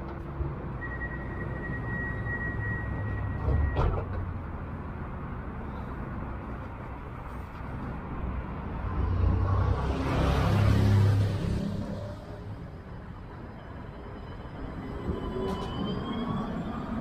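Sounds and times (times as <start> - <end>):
tram equipment humming: 0.0 - 9.3, 10.8 - 17.0
tram pulling away: 11.6 - 17.0.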